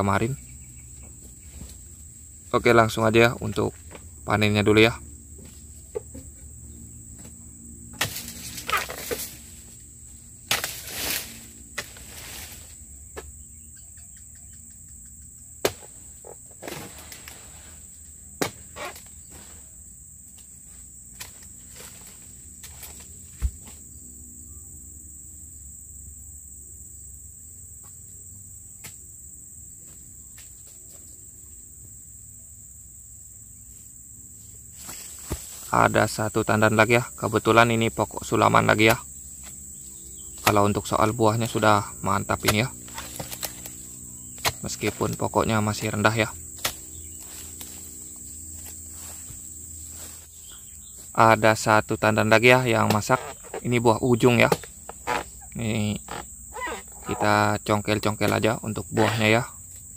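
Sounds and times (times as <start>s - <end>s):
crickets chirping: 0.0s - 59.9s
high-pitched insect chorus: 0.0s - 59.9s
chisel chopping palm stalk: 7.9s - 9.4s, 10.4s - 12.5s, 15.6s - 16.0s, 18.4s - 19.1s, 21.1s - 23.8s, 38.5s - 39.6s, 40.3s - 47.8s, 52.8s - 55.3s.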